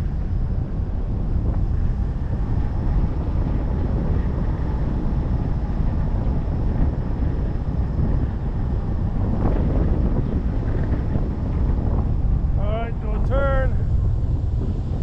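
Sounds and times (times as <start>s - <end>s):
air rushing over microphone: 0.0s - 15.0s.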